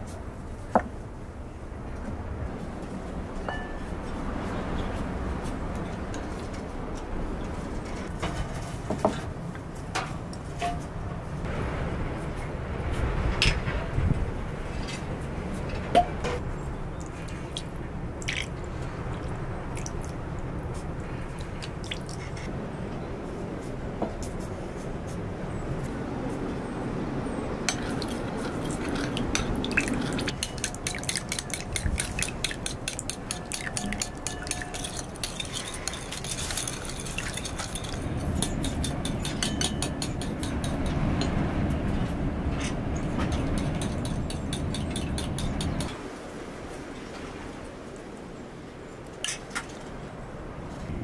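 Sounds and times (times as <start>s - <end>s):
spoon clinking and scraping bowl: 27.7s - 41.0s, 43.3s - 45.9s
liquid pouring into bowl: 27.8s - 38.0s.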